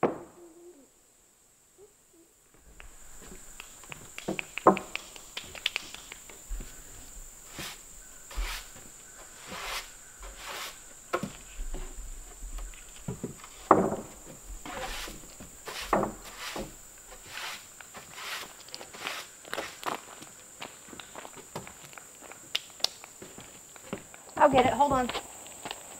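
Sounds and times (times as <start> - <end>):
broom sweeping wooden deck: 2.6 - 20.8
footsteps on wooden boards: 2.6 - 22.5, 23.1 - 25.9.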